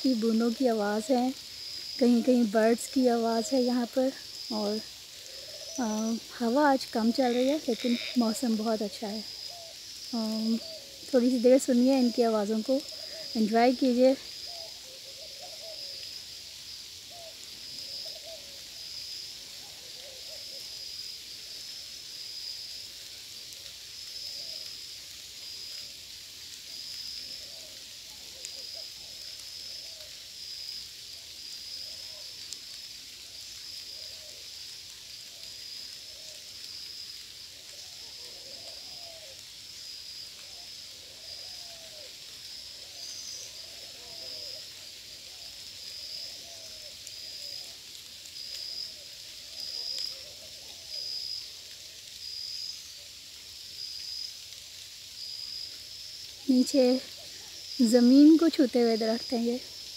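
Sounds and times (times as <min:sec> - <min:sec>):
birds hooting and cooing: 0:05.0 - 0:06.3, 0:09.4 - 0:13.6, 0:14.3 - 0:16.1, 0:17.0 - 0:18.8, 0:19.5 - 0:20.8, 0:24.3 - 0:24.7, 0:27.2 - 0:30.2, 0:37.7 - 0:39.4, 0:40.4 - 0:45.5, 0:46.1 - 0:47.8, 0:48.8 - 0:51.1.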